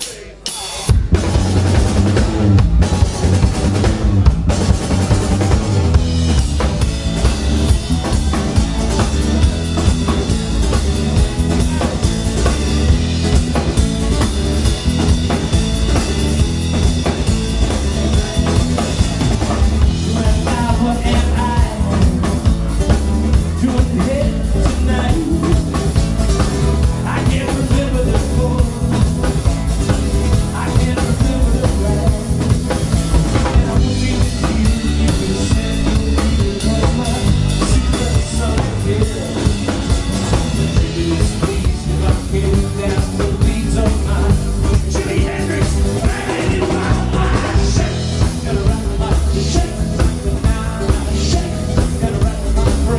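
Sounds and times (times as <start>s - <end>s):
drum kit steady beat: 0.0s - 52.9s
electric bass guitar: 0.0s - 52.9s
acoustic guitar: 1.0s - 52.9s.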